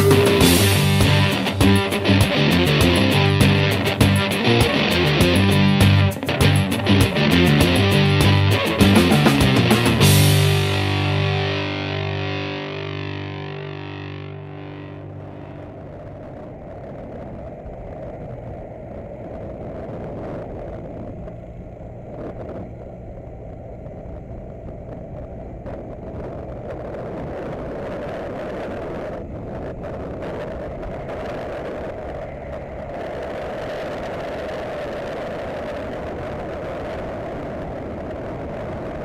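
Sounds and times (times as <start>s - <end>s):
motorcycle engine running: 0.0s - 18.8s
wind and road rush: 0.0s - 39.0s.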